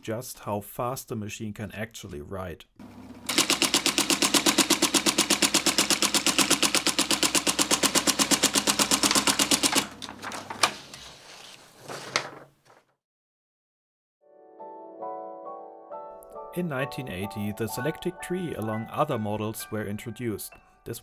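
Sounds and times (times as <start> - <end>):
electric typewriter repeating strikes: 3.3 - 10.8.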